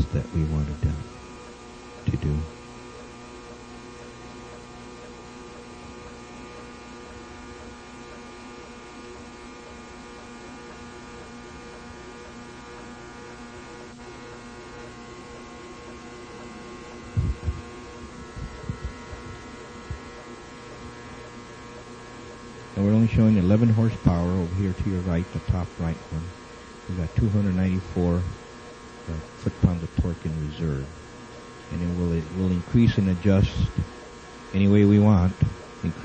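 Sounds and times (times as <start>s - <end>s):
steady hum of level tones: 0.0s - 36.0s
short low thumps: 17.1s - 20.1s.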